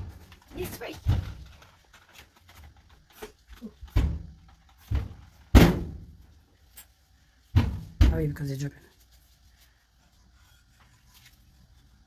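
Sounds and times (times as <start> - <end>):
knocks and thuds: 3.9 - 6.2, 7.5 - 8.4.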